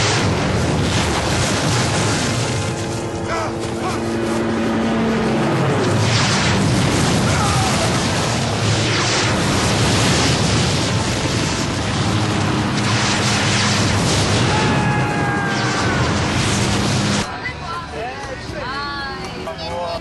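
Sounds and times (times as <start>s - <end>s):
explosion noise: 0.0s - 3.5s, 5.6s - 17.3s.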